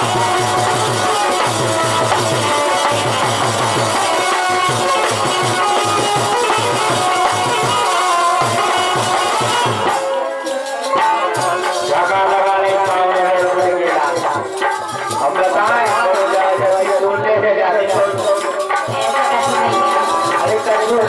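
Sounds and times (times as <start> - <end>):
drum strokes: 0.0 - 21.0
rattling percussion: 0.0 - 21.0
man singing: 9.8 - 21.0.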